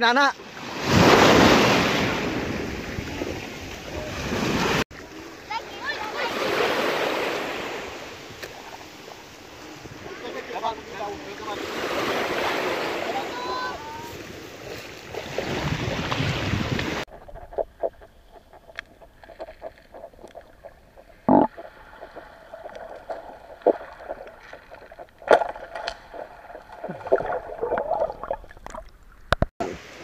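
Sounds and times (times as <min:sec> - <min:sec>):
seawater sloshing: 0:00.6 - 0:29.9
wind on microphone: 0:13.8 - 0:21.5
underwater thuds: 0:16.1 - 0:29.5
underwater clicks and knocks: 0:17.1 - 0:29.5.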